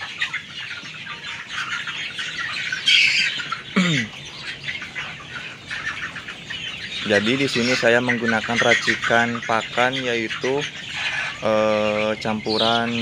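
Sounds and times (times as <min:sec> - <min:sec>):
chicks peeping and squawking: 0:00.0 - 0:13.0.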